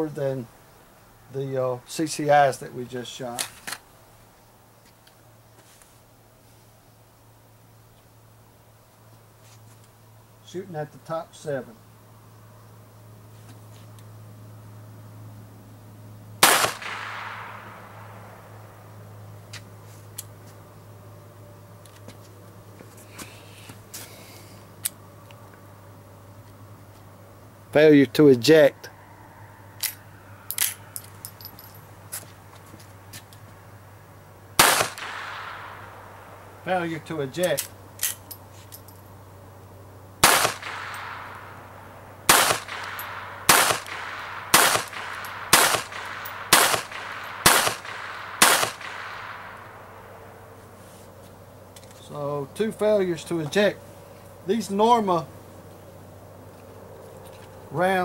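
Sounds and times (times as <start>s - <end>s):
low steady hum: 0.0s - 58.0s
pistol metallic clicks: 29.8s - 31.6s, 34.6s - 35.8s, 37.4s - 39.0s, 40.2s - 41.4s, 42.3s - 49.6s.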